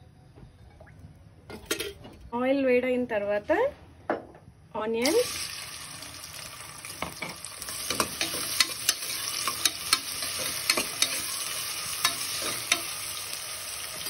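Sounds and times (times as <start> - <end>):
onions sizzling in hot oil: 5.0 - 14.0
steel spoon scraping metal pot: 7.8 - 12.9.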